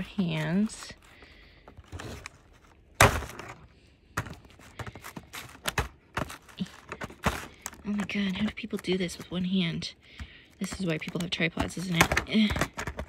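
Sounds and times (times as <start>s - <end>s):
plastic packaging handled and cut: 0.0s - 3.6s, 4.2s - 13.0s.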